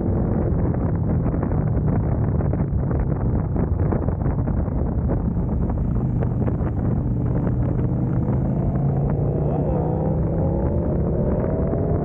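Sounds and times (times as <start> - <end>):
wind rushing over microphone: 0.0 - 12.0
motorcycle engine accelerating: 5.0 - 12.0.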